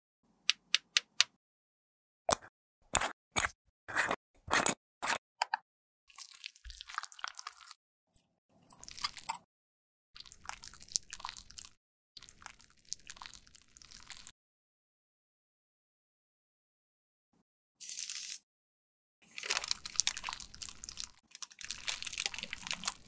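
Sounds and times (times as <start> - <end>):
sticky crackling wet sounds: 19.4 - 23.0.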